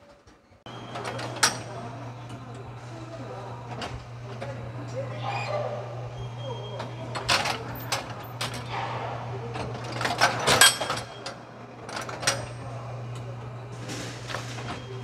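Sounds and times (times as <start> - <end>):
steady low machine hum: 0.7 - 15.0
machine metal clicks and clanks: 9.6 - 12.6.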